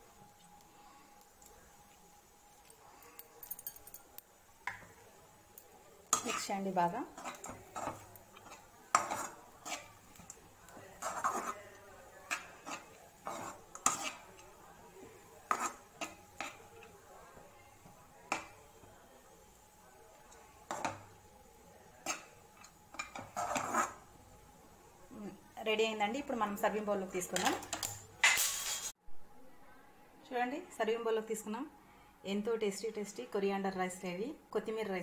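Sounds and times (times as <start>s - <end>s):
spatula scraping a pan: 6.1s - 16.9s, 22.0s - 24.2s.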